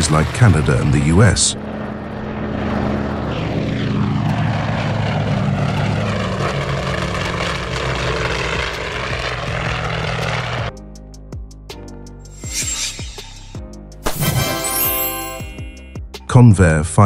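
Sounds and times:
propeller plane flying past: 0:00.0 - 0:10.9.

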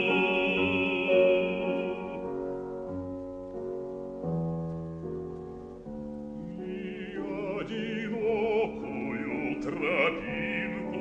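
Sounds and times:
bass voice singing with vibrato: 0:00.0 - 0:02.4, 0:06.5 - 0:11.0
piano playing sustained chords: 0:00.0 - 0:11.0.

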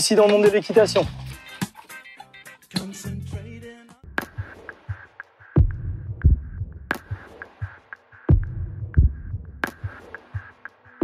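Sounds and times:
electronic background music: 0:00.0 - 0:11.0
deep bass thump: 0:05.6 - 0:06.8, 0:08.3 - 0:09.5.

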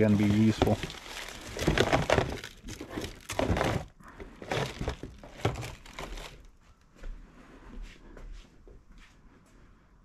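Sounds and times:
plastic wrapping crinkling: 0:00.0 - 0:06.6
plastic panels and cardboard knocking: 0:00.3 - 0:06.4.

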